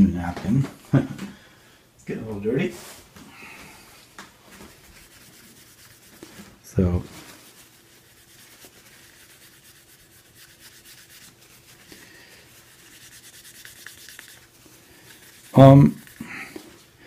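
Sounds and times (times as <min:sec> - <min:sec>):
paper napkin wiping plastic: 0:04.4 - 0:16.9.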